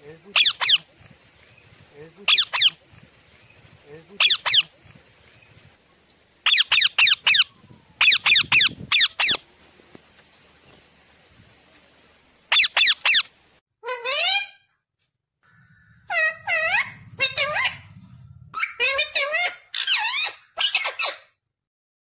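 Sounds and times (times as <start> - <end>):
parrot squawking: 0.3 - 0.8, 2.3 - 2.8, 4.2 - 4.7, 6.5 - 9.4, 12.5 - 14.7, 15.4 - 21.3.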